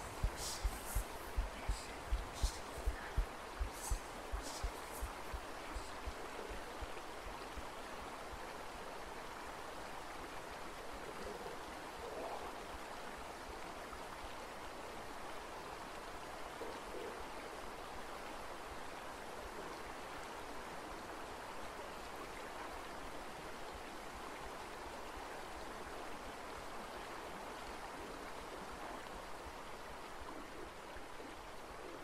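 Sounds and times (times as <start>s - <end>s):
steady rushing noise: 0.0s - 6.6s.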